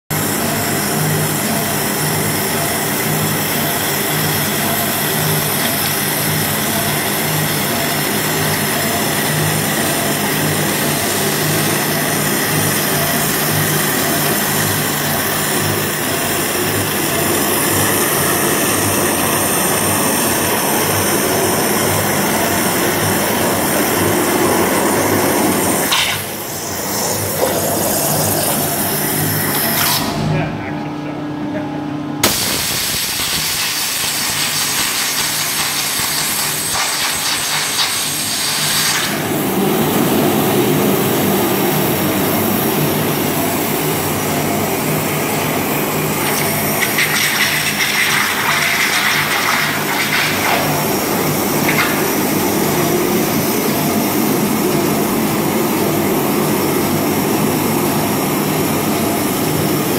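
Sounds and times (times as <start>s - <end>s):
water jet hissing: 16.6s - 29.7s, 32.2s - 39.5s, 45.7s - 54.1s.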